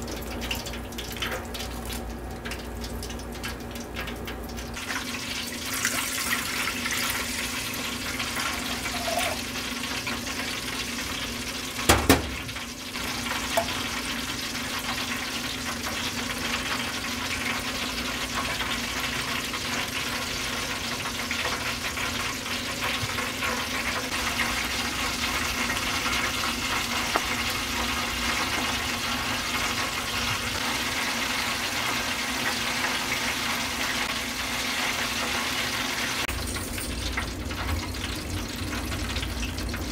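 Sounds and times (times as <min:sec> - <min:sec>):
liquid hissing in hot pan: 0:05.4 - 0:09.6.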